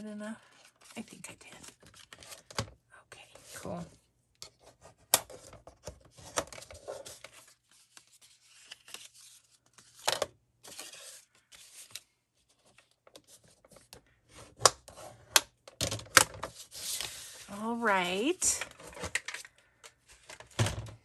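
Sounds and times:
paper rustling and crinkling: 0:00.4 - 0:02.6, 0:04.5 - 0:14.6, 0:16.3 - 0:17.8.

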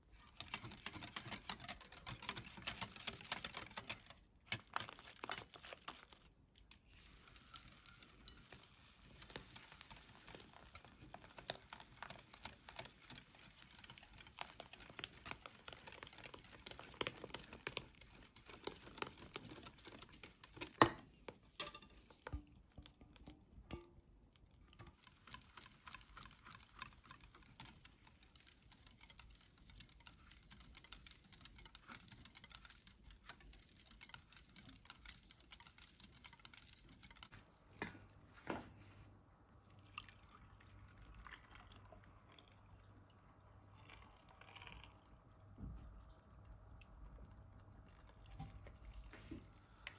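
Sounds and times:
whisk ticking against glass bowl: 0:00.2 - 0:06.0, 0:07.5 - 0:37.3.

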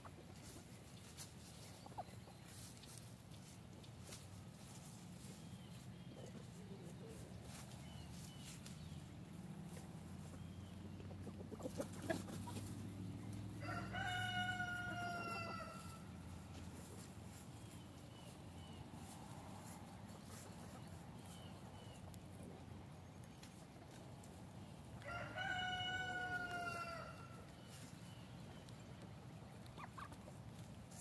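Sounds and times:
rooster crowing: 0:13.6 - 0:16.1, 0:25.0 - 0:27.4.

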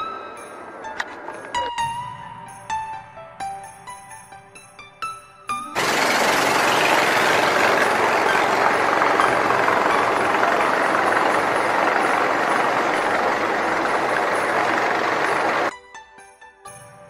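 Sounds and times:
boat engine running: 0:05.8 - 0:15.7.

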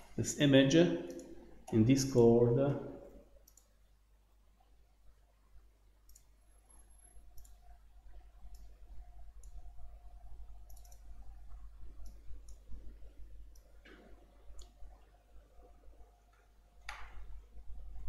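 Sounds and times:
steady low hum: 0:00.0 - 0:18.0
computer mouse clicking: 0:01.0 - 0:01.8, 0:03.4 - 0:03.8, 0:06.0 - 0:07.7, 0:09.4 - 0:09.7, 0:10.6 - 0:11.3, 0:11.9 - 0:14.8.

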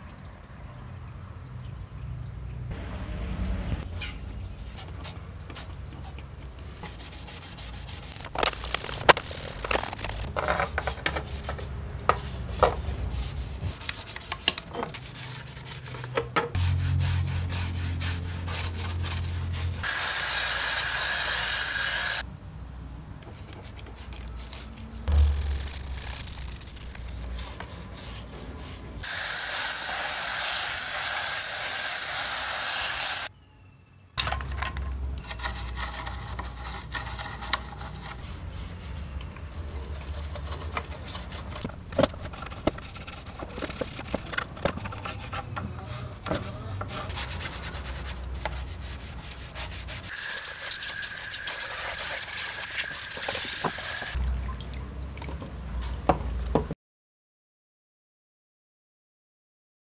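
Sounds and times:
brush scrubbing plastic: 0:06.8 - 0:20.2, 0:25.4 - 0:29.1, 0:35.2 - 0:53.8
water spraying hiss: 0:19.8 - 0:22.2, 0:29.0 - 0:33.3, 0:50.1 - 0:54.2.

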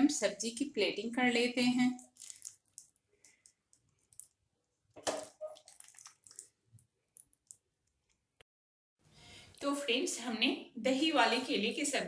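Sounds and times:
wet squishing: 0:02.0 - 0:08.4.

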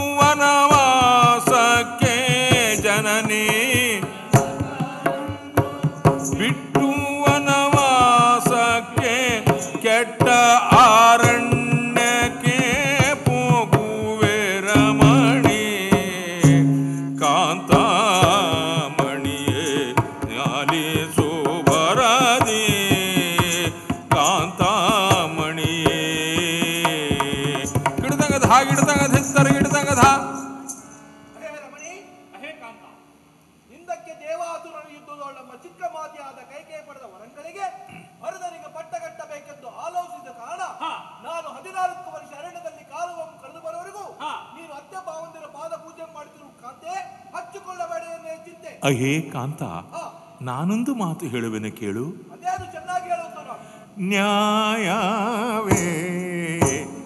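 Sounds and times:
drum strokes: 0:00.0 - 0:31.1, 0:55.6 - 0:57.0.

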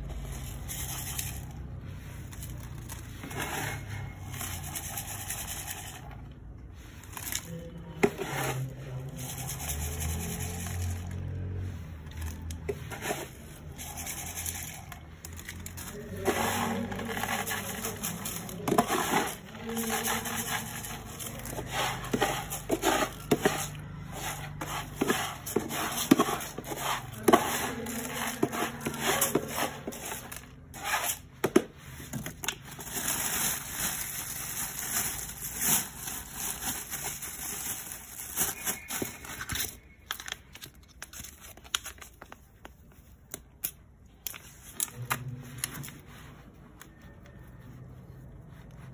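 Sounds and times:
litter scoop scraping through litter: 0:00.0 - 0:39.8
gritty clicks of granules: 0:12.0 - 0:45.9.

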